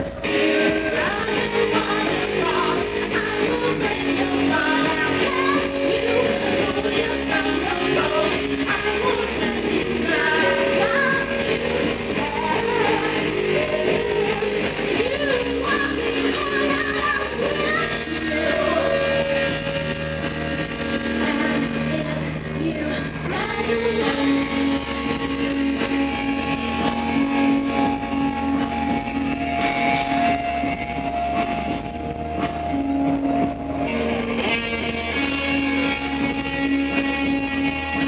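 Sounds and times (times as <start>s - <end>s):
woman singing: 0.0s - 19.6s, 20.8s - 26.2s
electric guitar: 0.0s - 38.0s
live rock band playing: 0.0s - 38.0s.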